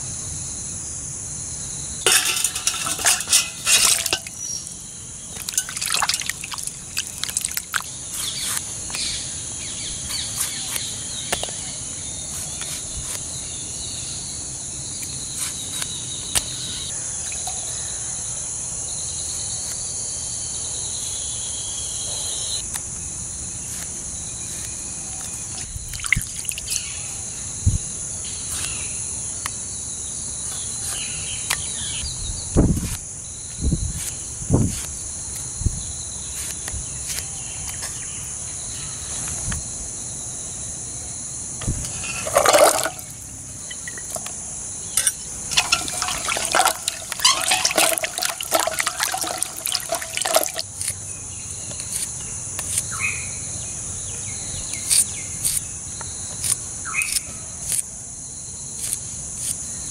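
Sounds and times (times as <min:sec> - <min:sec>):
insects chirring: 0:00.0 - 0:59.9
water splashing and dripping: 0:02.1 - 0:04.4, 0:05.3 - 0:07.9, 0:25.9 - 0:26.8, 0:45.5 - 0:50.6.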